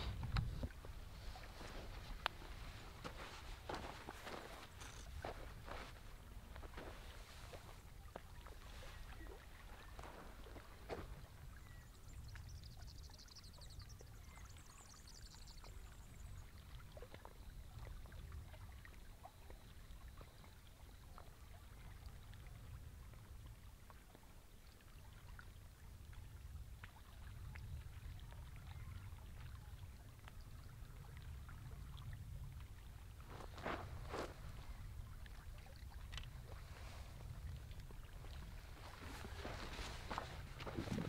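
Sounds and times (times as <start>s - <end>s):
wind rumble on microphone: 0.0s - 14.9s, 25.6s - 41.0s
small waves lapping: 0.0s - 41.0s.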